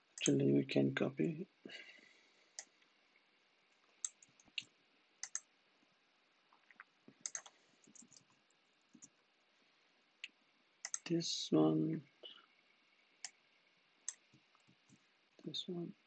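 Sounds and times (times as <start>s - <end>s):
keyboard and mouse clicks: 4.0s - 5.5s, 6.6s - 8.3s, 10.8s - 11.1s.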